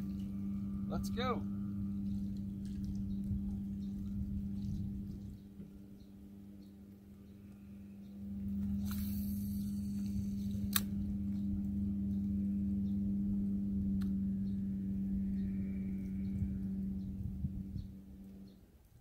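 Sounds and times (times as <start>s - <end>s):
low motor hum: 0.0s - 19.0s
fishing line hissing out: 8.6s - 10.9s
fishing reel click: 8.6s - 11.0s.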